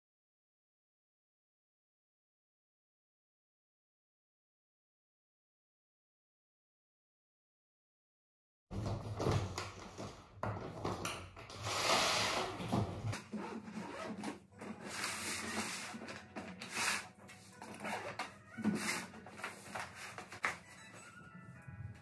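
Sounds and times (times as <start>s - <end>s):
suitcase rubbing and scraping: 11.5s - 20.9s.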